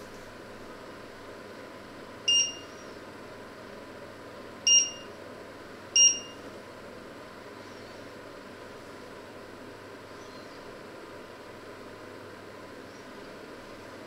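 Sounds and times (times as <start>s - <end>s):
hob touch control beeps: 2.3s - 2.7s, 4.7s - 5.1s, 6.0s - 6.4s.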